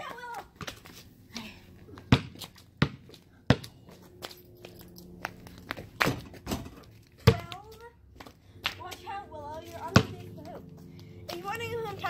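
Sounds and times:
basketball bouncing: 2.0s - 4.4s, 5.7s - 7.8s, 9.9s - 10.3s.

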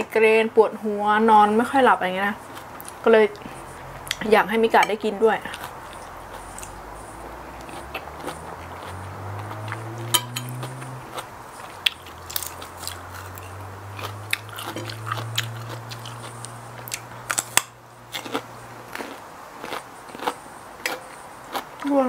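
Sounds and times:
chewing and crunching food: 2.3s - 22.0s
low hum: 3.3s - 19.0s.

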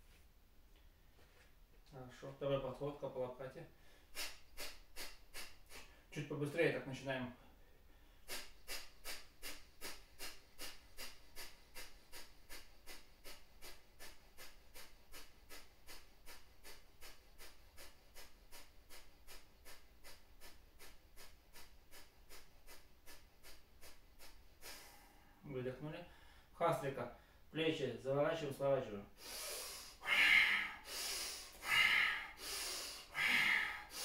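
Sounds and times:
rapid forceful breaths through nose: 3.8s - 6.1s, 7.8s - 25.4s, 29.1s - 34.0s.

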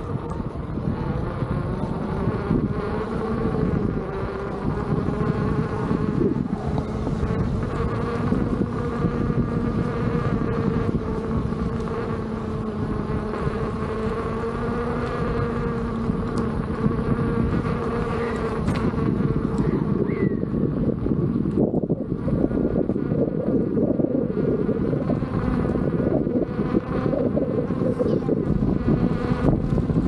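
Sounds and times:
electric motor whining: 0.0s - 30.0s
wind and tyre rumble: 0.0s - 30.0s.

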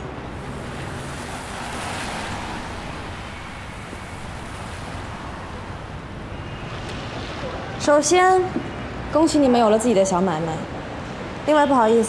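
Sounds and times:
rain falling on street: 0.0s - 8.2s.

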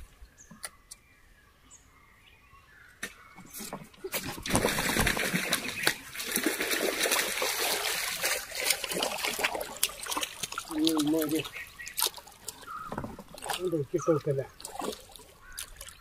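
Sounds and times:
water splashing and trickling: 3.3s - 16.0s.

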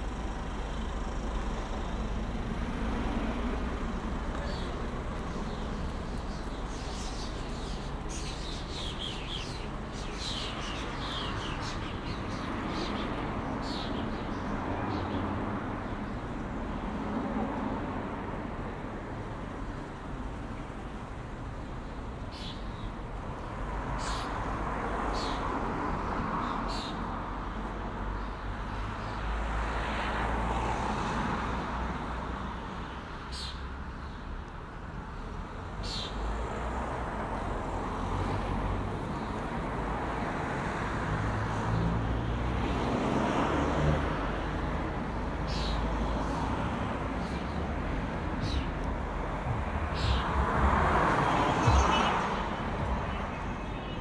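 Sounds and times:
birds chirping: 0.0s - 16.9s, 22.1s - 29.5s, 35.2s - 36.4s, 41.4s - 54.0s
road traffic rumble: 0.0s - 54.0s
car passing: 36.2s - 54.0s.

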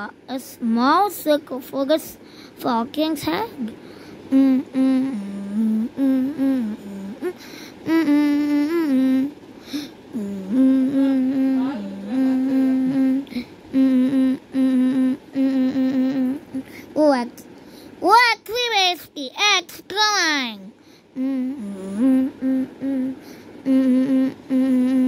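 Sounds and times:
person humming a tune: 3.6s - 16.8s, 21.1s - 25.0s.

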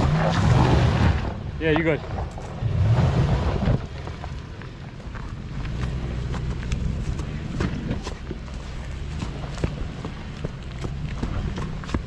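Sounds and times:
suv engine pulling uphill: 0.0s - 12.0s
stones clicking under tyres: 1.7s - 2.6s, 3.4s - 12.0s.

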